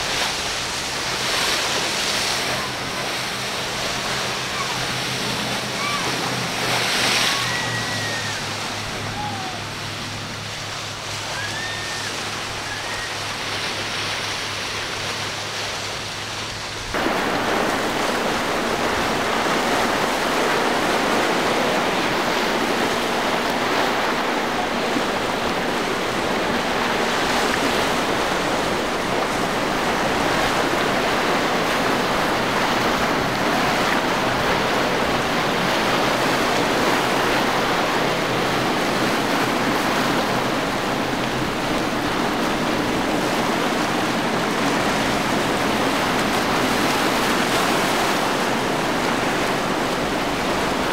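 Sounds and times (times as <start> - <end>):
waves and rushing water: 0.0 - 50.9
wind-like noise: 16.2 - 50.9.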